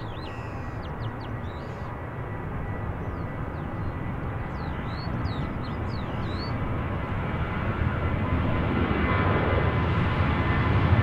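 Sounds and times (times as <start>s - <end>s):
bird chirps: 0.0s - 1.9s, 3.0s - 6.6s
jet engine roar: 0.0s - 11.0s.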